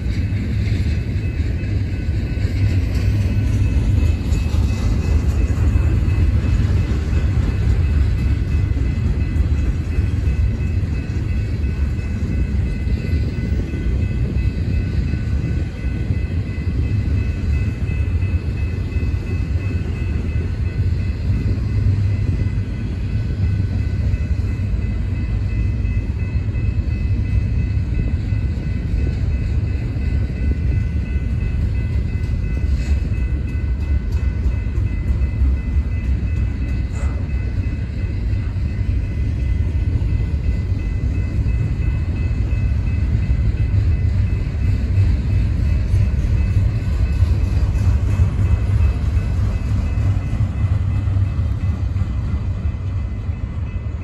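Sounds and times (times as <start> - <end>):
freight train rumbling on rails: 0.0 - 54.0.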